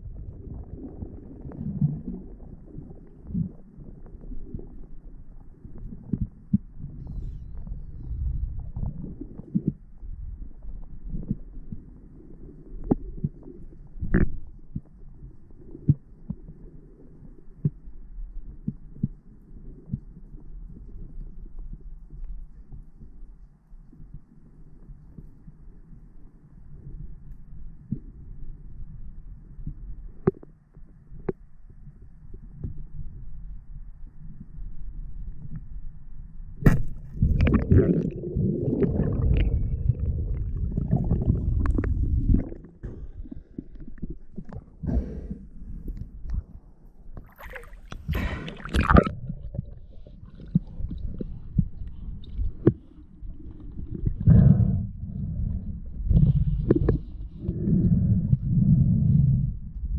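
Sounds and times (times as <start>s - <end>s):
water churning and gurgling: 0.0s - 17.0s, 36.7s - 59.9s
muffled underwater rumble: 0.0s - 59.9s.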